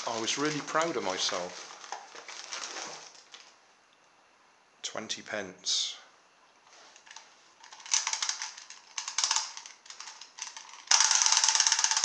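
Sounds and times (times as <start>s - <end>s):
ratchet clicks winding toy: 7.1s - 12.0s
clockwork motor ticking: 10.4s - 12.0s.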